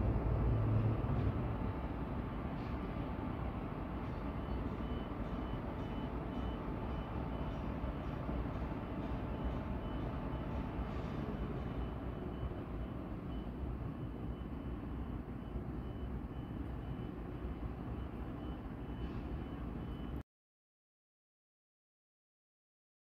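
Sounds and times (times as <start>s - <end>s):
traffic rumble: 0.0s - 4.7s
faint high-pitched beep: 4.1s - 8.1s, 9.0s - 20.2s.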